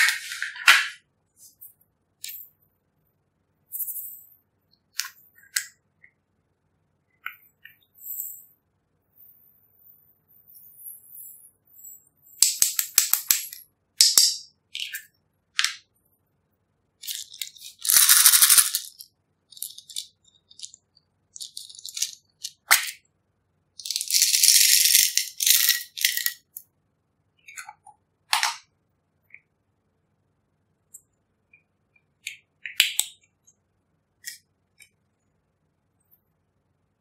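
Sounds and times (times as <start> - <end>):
beads rattling into a glass dish: 17.0 - 20.8, 21.4 - 22.7, 23.8 - 26.6.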